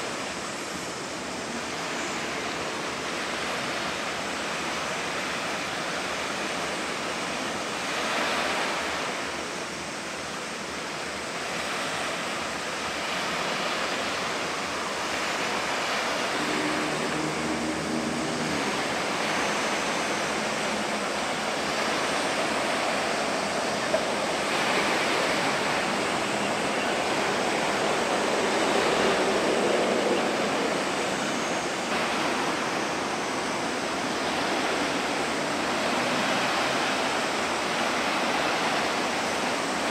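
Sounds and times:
choppy sea water rushing: 0.0 - 39.9.

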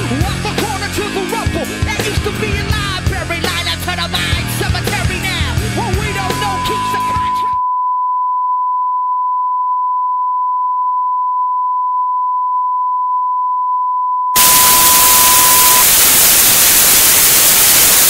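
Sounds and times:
television static hiss: 14.4 - 18.0
test tone: 14.4 - 18.0.

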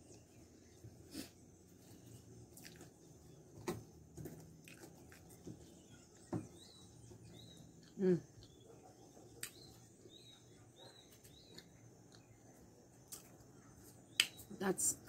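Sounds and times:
soft chewing: 0.1 - 3.3, 4.2 - 9.9.

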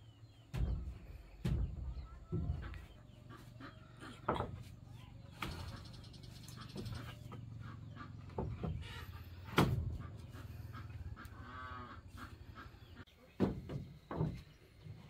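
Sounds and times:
chickens clucking: 0.0 - 15.0
wooden planks knocking: 0.5 - 2.9, 13.4 - 14.5.

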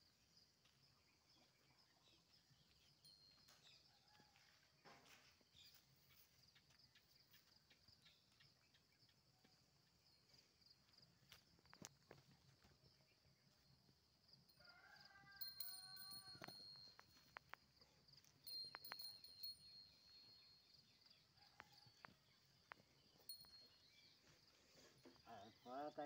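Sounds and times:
insect chirring: 15.4 - 23.9.

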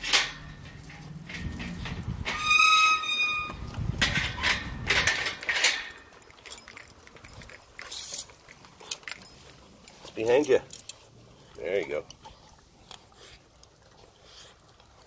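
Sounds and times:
wire gate clanking and rattling: 0.0 - 8.2
puppy paws on metal grating: 0.0 - 12.4
metal gate squealing open: 1.6 - 6.0.

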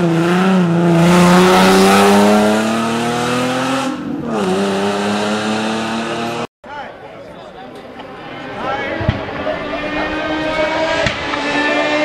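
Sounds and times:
car engine accelerating hard: 0.0 - 6.5, 9.3 - 12.0.

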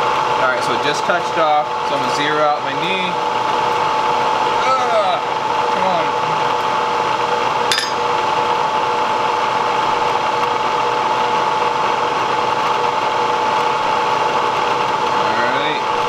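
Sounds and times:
milling machine motor hum: 0.0 - 16.0.

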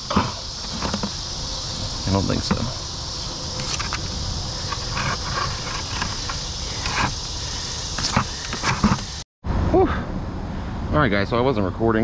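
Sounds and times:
high insect drone: 0.0 - 11.5
scrub brush scraping metal pipe: 4.6 - 7.2, 8.0 - 9.2.

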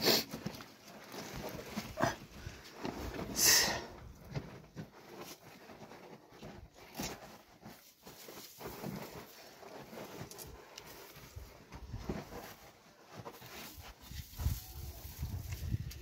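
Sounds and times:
dry grass and twigs rustling: 0.4 - 16.0.

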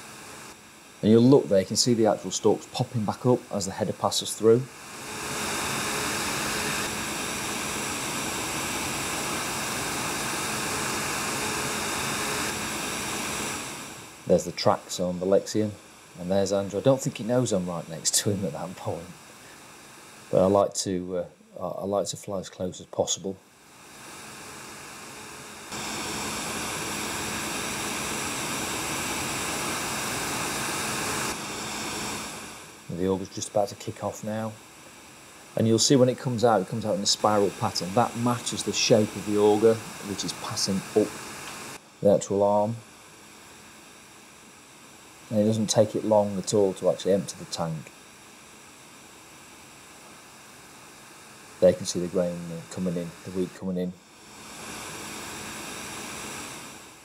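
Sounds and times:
combine harvester working: 0.0 - 15.6, 23.7 - 34.8, 35.6 - 42.8.

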